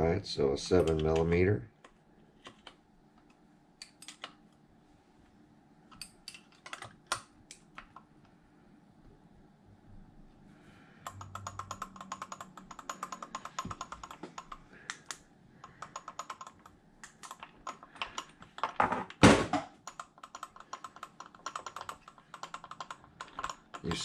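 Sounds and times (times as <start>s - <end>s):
rapid mechanical clicks: 11.1s - 18.6s, 19.8s - 24.0s.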